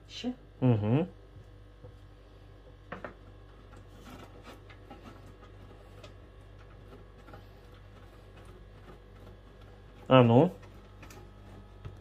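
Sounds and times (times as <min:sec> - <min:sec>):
cheese grating on metal grater: 0:03.6 - 0:12.0.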